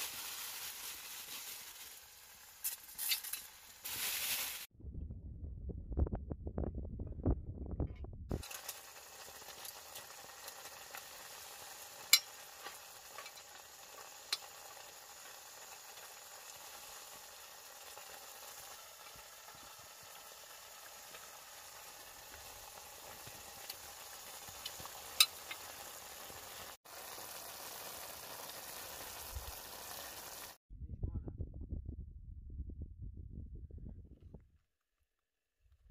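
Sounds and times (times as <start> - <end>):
pot simmering with sizzling hiss: 0.0 - 4.7, 8.3 - 30.6
metal spoon clinking against pot: 12.1 - 12.4.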